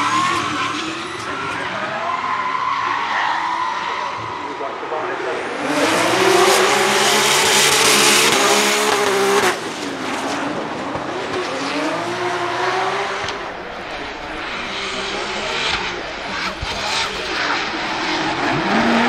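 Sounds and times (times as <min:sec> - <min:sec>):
car engine at high revs: 0:04.1 - 0:19.0.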